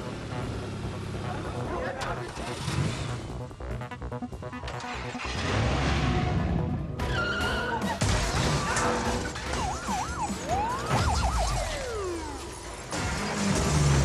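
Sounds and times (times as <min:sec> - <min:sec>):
tense film score music: 0:00.0 - 0:14.0
police siren wailing: 0:05.7 - 0:12.9.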